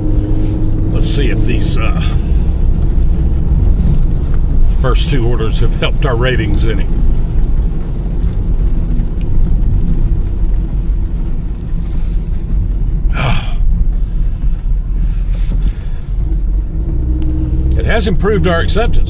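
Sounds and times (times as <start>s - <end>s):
car road and engine rumble: 0.0s - 19.0s.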